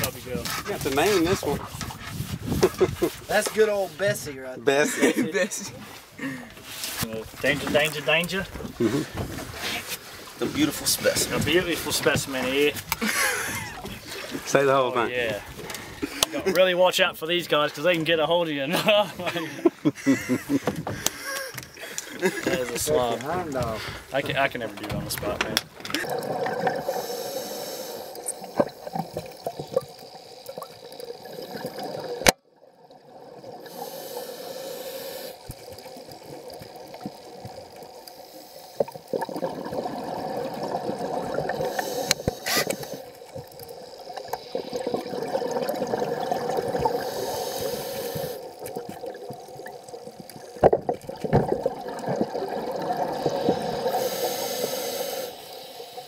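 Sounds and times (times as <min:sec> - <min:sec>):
sharp clicks and knocks: 0:23.6 - 0:26.0.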